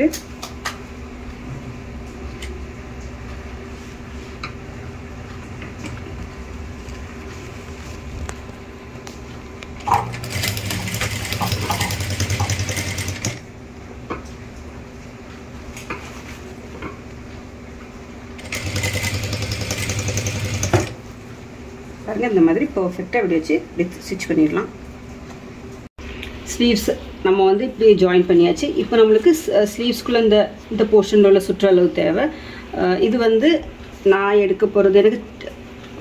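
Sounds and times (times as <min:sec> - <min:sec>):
sewing machine stitching: 0:09.9 - 0:13.4, 0:18.4 - 0:21.0.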